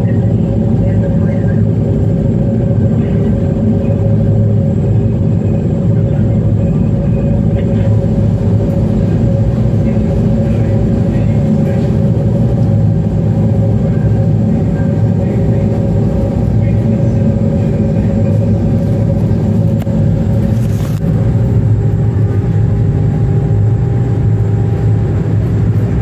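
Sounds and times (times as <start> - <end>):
ferry engines droning: 0.0 - 26.0.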